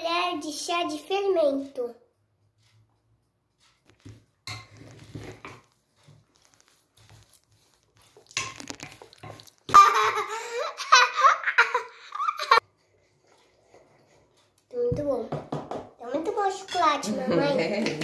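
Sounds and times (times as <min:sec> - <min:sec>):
faint clicks and knocks: 0:00.9 - 0:09.8
child laughing and squealing: 0:09.7 - 0:12.6.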